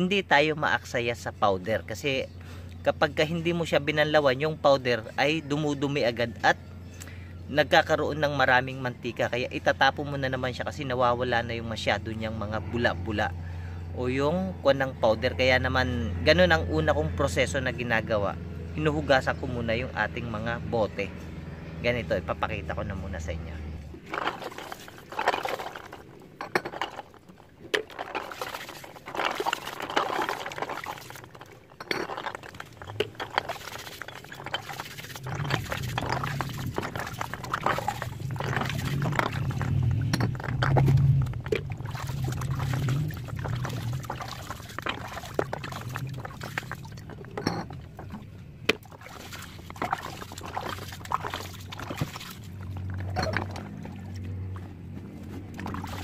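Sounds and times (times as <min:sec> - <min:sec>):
water splashing: 0:23.9 - 0:56.0
steel wool scrubbing plastic bottle: 0:24.0 - 0:26.1, 0:26.7 - 0:47.2, 0:48.8 - 0:53.1, 0:55.0 - 0:56.0
low rumble: 0:27.9 - 0:48.7.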